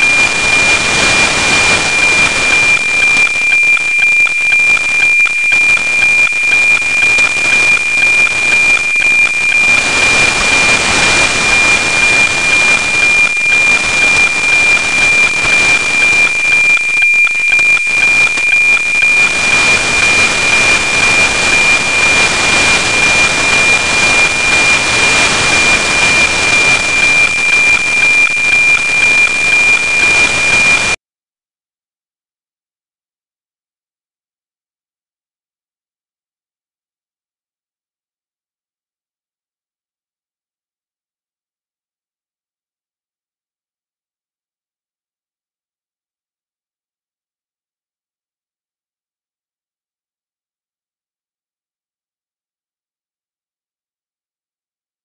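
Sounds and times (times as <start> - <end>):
satellite radio signal tone with ticking: 0.0 - 31.0.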